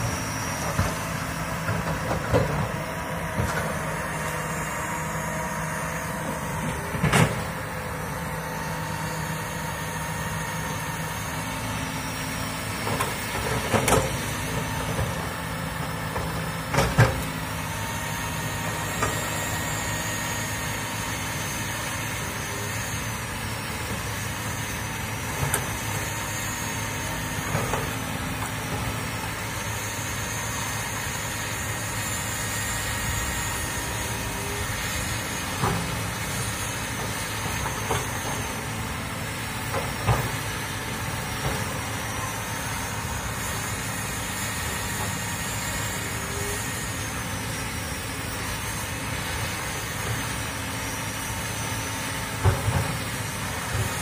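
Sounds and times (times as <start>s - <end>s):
excavator diesel engine running: 0.0s - 54.0s.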